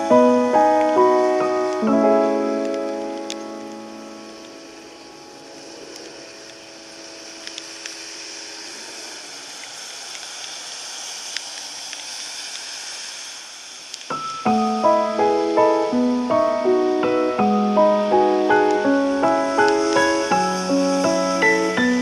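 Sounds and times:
piano music: 0.0s - 8.5s, 14.1s - 22.0s
rain hiss: 0.0s - 22.0s
faint ticks: 5.5s - 8.2s, 9.5s - 12.7s.

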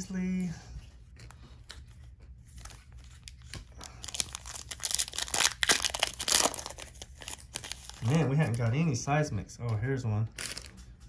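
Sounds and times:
wrapper crinkling and tearing: 2.5s - 8.7s, 10.3s - 10.8s.

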